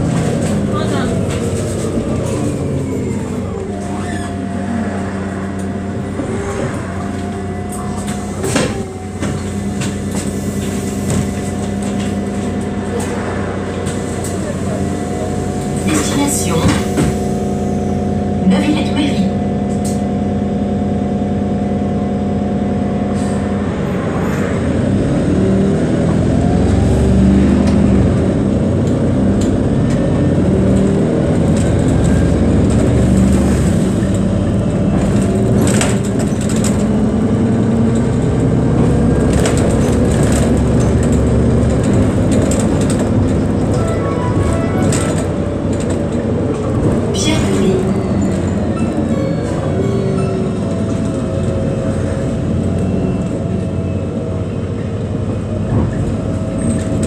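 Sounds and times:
bus engine idling and accelerating: 0.0s - 57.0s
road rumble: 0.0s - 57.0s
rattles and clicks: 30.7s - 52.9s.

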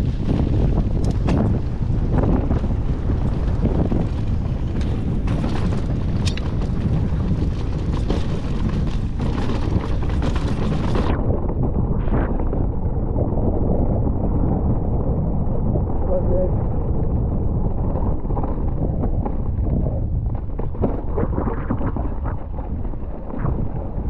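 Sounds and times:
bike knocking over bumps: 0.0s - 11.2s
wind buffeting microphone: 0.0s - 24.0s.

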